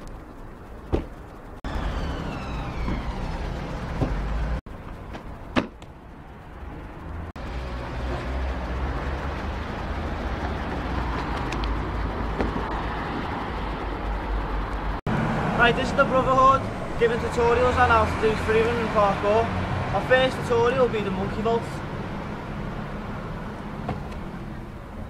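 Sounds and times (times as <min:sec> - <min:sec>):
falling whine: 0:00.0 - 0:11.1
road traffic: 0:00.0 - 0:25.0.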